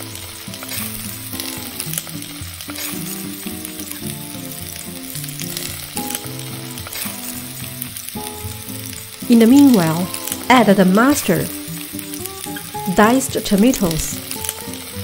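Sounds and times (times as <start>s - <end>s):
background music: 0.0s - 15.0s
chicken sizzling in butter: 0.0s - 15.0s
metal tongs turning food: 4.7s - 10.6s.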